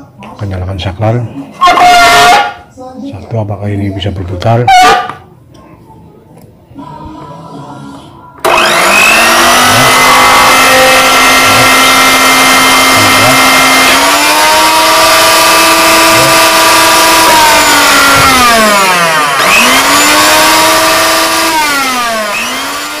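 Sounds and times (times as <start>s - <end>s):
blender motor humming: 8.4s - 23.0s.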